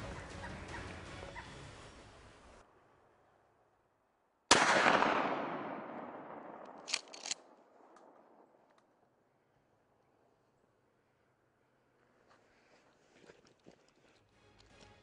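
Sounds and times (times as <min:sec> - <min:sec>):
gunshot echoing: 0:04.5 - 0:08.4.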